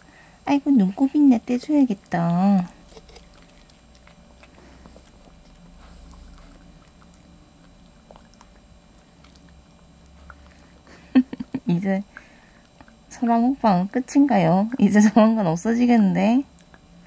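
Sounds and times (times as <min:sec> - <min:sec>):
dog gnawing a chew: 0:02.0 - 0:10.7.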